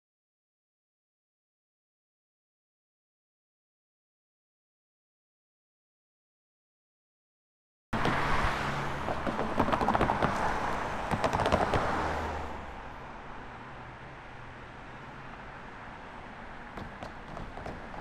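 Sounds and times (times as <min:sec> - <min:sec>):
vehicle passing by: 0:08.0 - 0:16.8.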